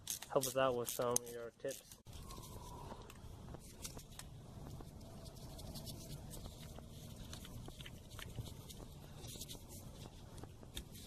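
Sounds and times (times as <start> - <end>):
socket wrench clicks and scrapes: 0.0 - 2.3.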